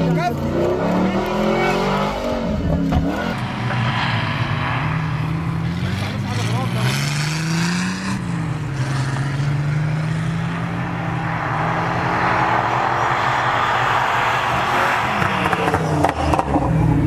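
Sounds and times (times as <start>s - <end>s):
engine running at high revs: 0.0s - 17.0s
rushing noise: 2.3s - 6.4s, 10.3s - 16.5s.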